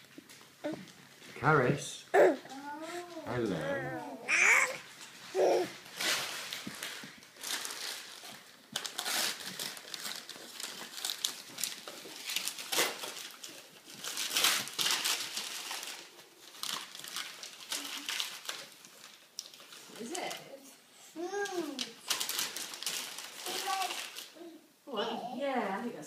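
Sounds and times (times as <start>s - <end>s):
wrapping paper crinkling: 4.3s - 20.2s, 21.2s - 24.4s.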